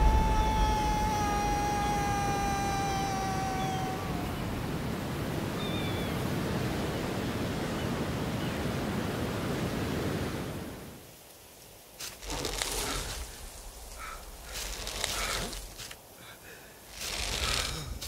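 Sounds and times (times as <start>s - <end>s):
ocean surf rushing: 0.0s - 11.0s
wind over open sea: 0.0s - 11.2s, 12.1s - 16.1s, 17.0s - 18.0s.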